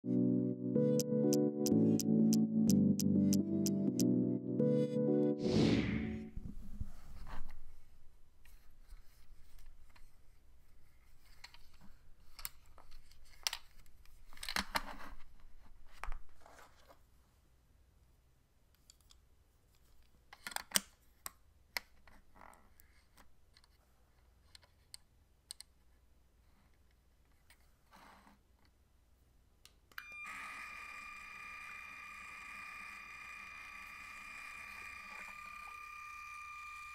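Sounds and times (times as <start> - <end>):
steady high electronic tone: 0.2 - 6.3
plastic parts clicking and rattling: 11.2 - 15.1.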